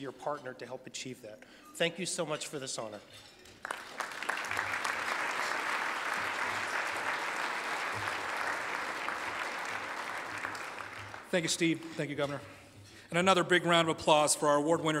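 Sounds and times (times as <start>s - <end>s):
audience applauding: 3.6s - 11.6s.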